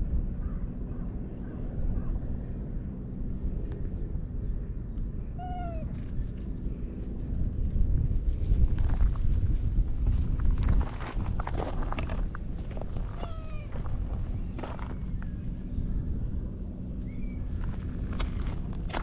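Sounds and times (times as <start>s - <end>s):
low background rumble: 0.0s - 19.0s
cat meowing: 13.2s - 13.7s.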